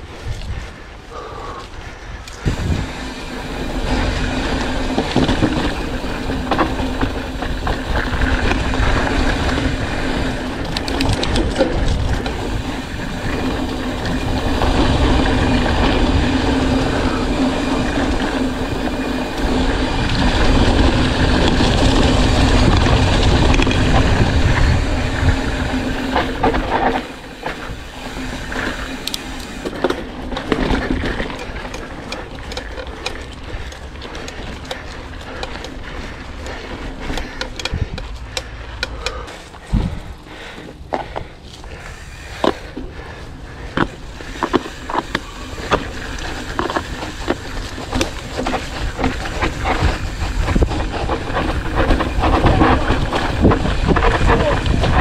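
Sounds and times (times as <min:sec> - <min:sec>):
wind rushing over microphone: 0:00.0 - 0:29.6, 0:39.6 - 0:41.4, 0:42.4 - 0:55.0
bike rattling: 0:00.0 - 0:55.0
bike tyres rolling on dirt: 0:00.0 - 0:55.0.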